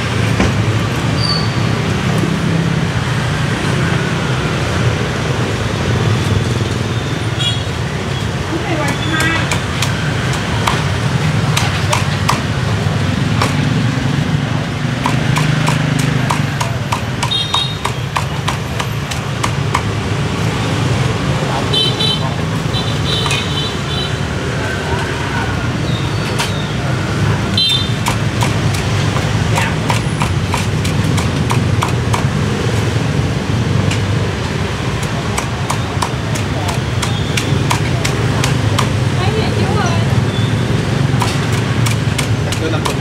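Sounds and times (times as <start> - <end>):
street traffic rumble: 0.0 - 43.0
cleaver chopping on wooden block: 8.8 - 12.7, 13.3 - 13.8, 14.9 - 20.0, 27.8 - 32.6, 34.9 - 39.2, 41.1 - 43.0.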